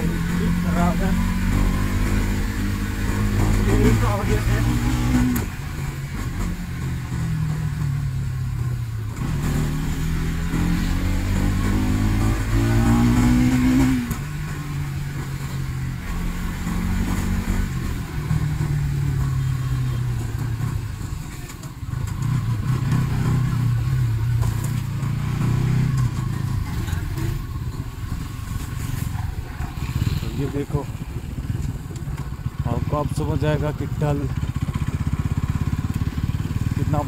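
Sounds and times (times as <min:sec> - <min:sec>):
motorcycle engine revving: 0:00.0 - 0:37.0.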